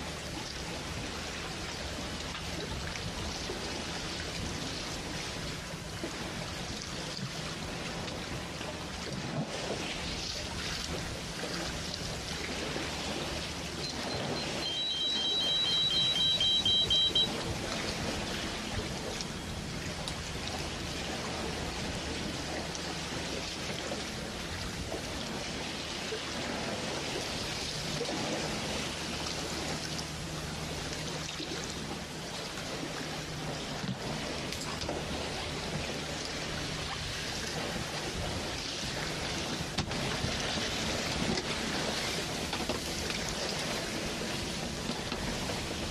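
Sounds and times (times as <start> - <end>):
running water: 0.0 - 45.9
rapid electronic beeping: 13.8 - 17.4.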